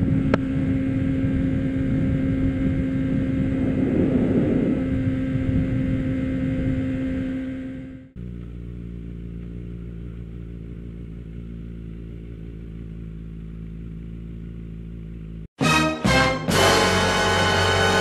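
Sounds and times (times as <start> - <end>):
motorcycle engine idling: 0.0 - 3.8, 4.4 - 15.6
loud music: 15.6 - 18.0.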